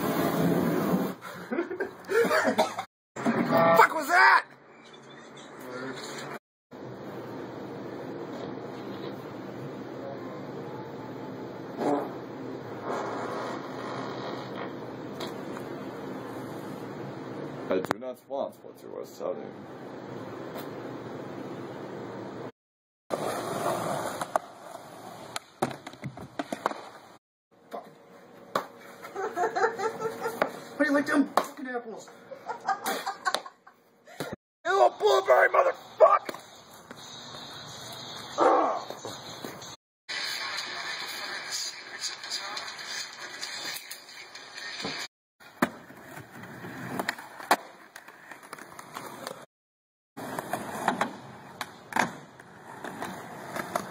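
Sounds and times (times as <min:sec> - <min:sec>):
skateboard wheels rolling on concrete: 0:00.0 - 0:01.5, 0:23.1 - 0:27.2, 0:36.0 - 0:49.5, 0:50.2 - 0:53.9.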